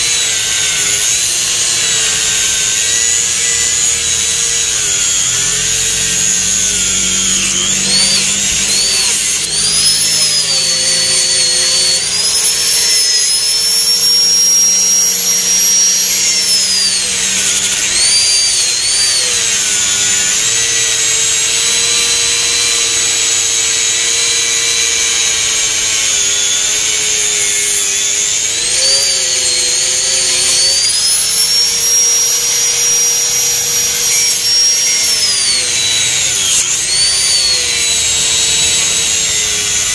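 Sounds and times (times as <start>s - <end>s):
angle grinder cutting: 0.0s - 39.9s.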